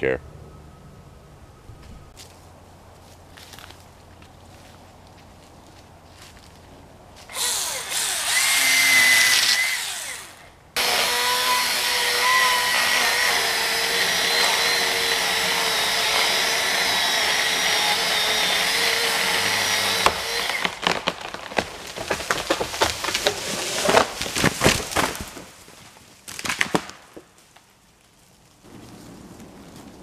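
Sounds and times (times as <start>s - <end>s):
chainsaw cutting wood: 7.3s - 25.5s
tree trunk cracking and snapping: 18.4s - 30.0s.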